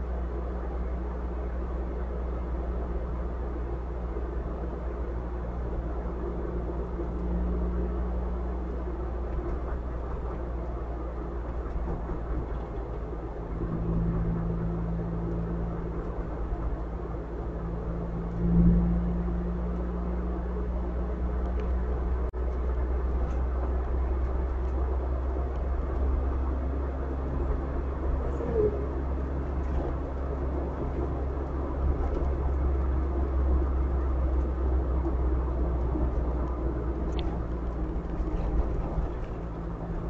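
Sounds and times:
car engine hum: 0.0s - 40.0s
car road rumble: 0.0s - 40.0s.

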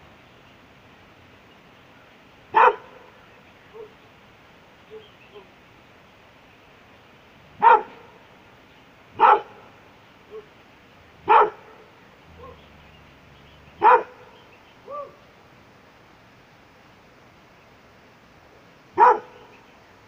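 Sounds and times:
dog barking: 2.5s - 3.1s, 3.7s - 4.0s, 7.6s - 8.1s, 9.2s - 9.7s, 10.3s - 10.5s, 11.3s - 12.6s, 13.8s - 15.2s, 19.0s - 19.5s.

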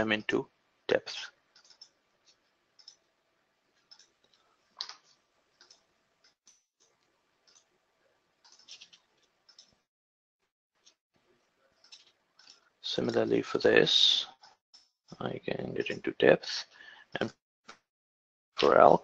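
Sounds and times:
computer mouse clicks: 1.5s - 3.1s, 3.8s - 7.7s, 8.4s - 9.8s.

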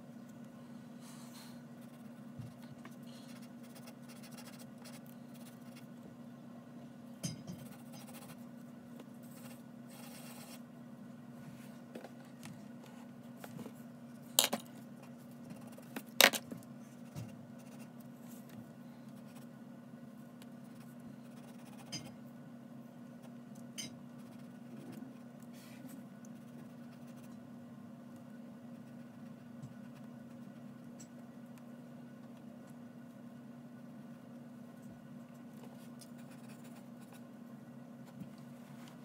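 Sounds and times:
pencil scratching on paper: 1.8s - 2.2s, 3.3s - 5.9s, 7.6s - 8.4s, 9.3s - 10.6s, 20.6s - 22.0s, 24.2s - 25.0s.

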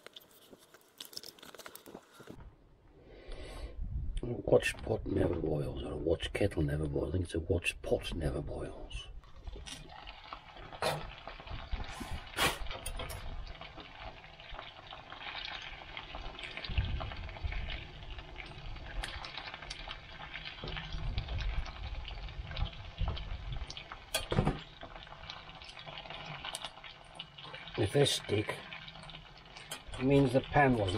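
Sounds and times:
food sizzling in a skillet: 9.8s - 30.9s.

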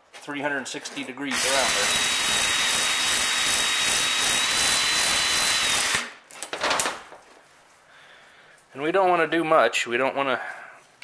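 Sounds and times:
electric drill whirring: 1.3s - 6.1s.

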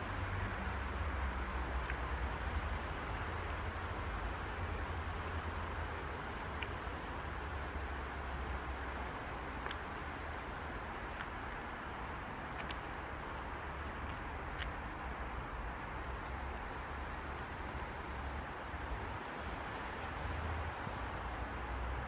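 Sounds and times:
city street rumble: 0.0s - 22.0s
faint clicks: 12.6s - 16.4s.

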